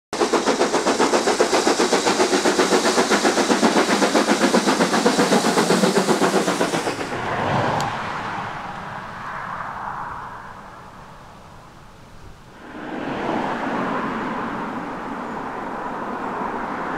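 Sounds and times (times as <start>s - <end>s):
steam locomotive exhaust beats: 0.1s - 9.2s.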